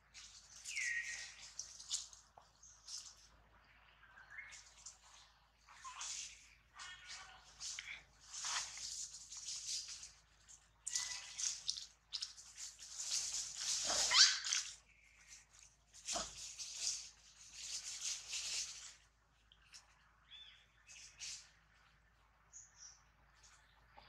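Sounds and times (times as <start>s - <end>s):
leaves and twigs rustling: 0.0s - 24.0s.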